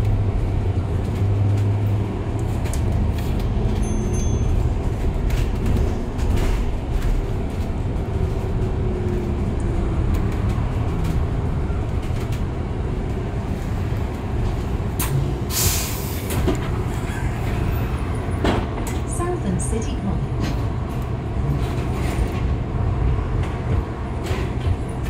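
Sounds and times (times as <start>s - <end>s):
bus body rattles: 0.0s - 19.2s, 20.3s - 25.0s
road and tyre rumble: 0.0s - 25.0s
air brakes hissing: 15.0s - 17.6s.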